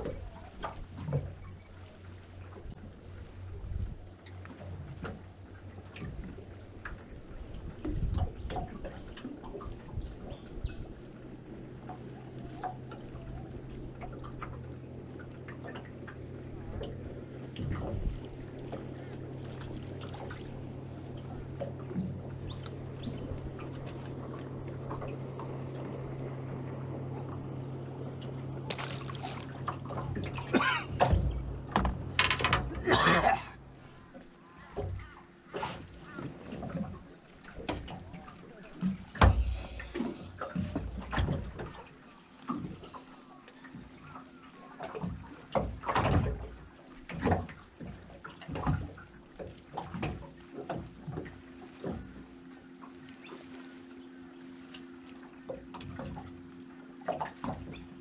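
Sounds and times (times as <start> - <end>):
steady low hum: 0.0 - 58.0
fish splashing in water: 28.7 - 30.8
water slapping against metal boat hull: 28.7 - 33.6, 34.6 - 43.0, 44.8 - 53.6, 57.0 - 58.0.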